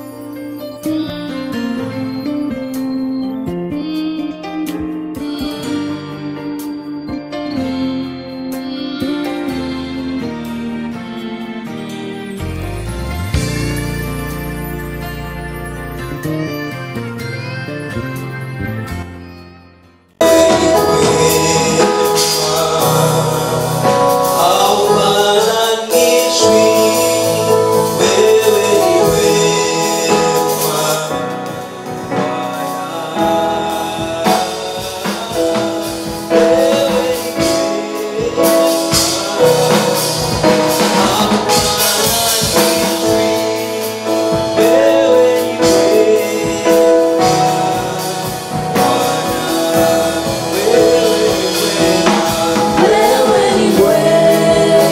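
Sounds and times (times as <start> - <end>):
instrumental backing: 0.0 - 54.9
gospel group singing: 20.2 - 54.9.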